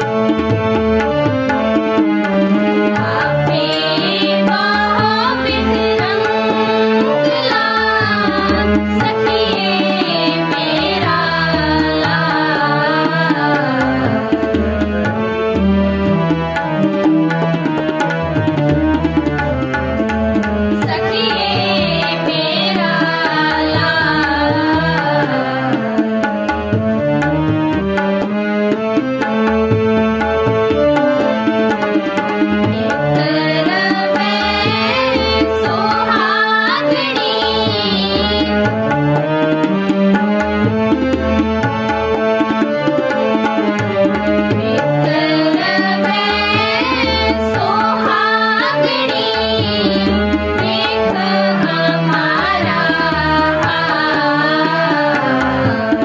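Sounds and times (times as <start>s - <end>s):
harmonium chords: 0.0s - 56.0s
tabla rhythm: 0.0s - 56.0s
girls singing: 3.0s - 14.3s, 20.8s - 25.8s, 32.8s - 38.6s, 44.6s - 56.0s.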